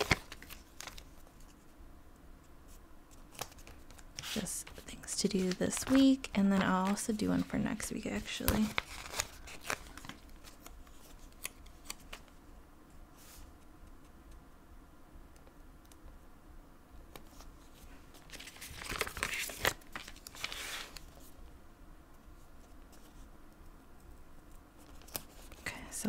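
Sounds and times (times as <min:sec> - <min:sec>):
paper crinkling: 0:00.0 - 0:01.6, 0:03.1 - 0:12.3, 0:17.1 - 0:21.4, 0:24.8 - 0:25.7.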